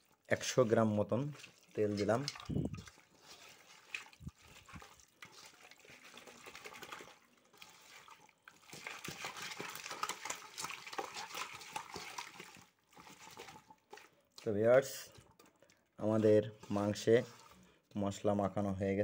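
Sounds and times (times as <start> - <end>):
hand squelching meat in marinade: 0.0 - 17.9.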